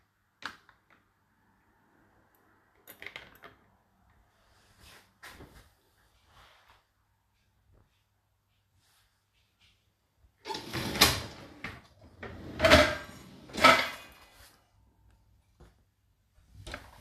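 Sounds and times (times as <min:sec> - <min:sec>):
dishwasher rack rattling on rails: 0:12.3 - 0:14.2.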